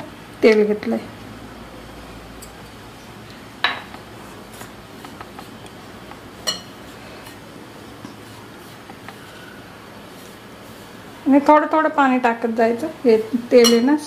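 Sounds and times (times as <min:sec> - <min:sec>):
utensils clinking on metal bowl: 0:06.4 - 0:07.4, 0:13.6 - 0:14.0.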